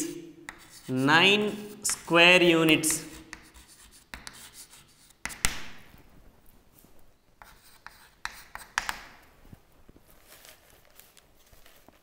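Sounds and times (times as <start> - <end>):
chalk scratching on blackboard: 0.5 - 5.5, 7.4 - 9.0.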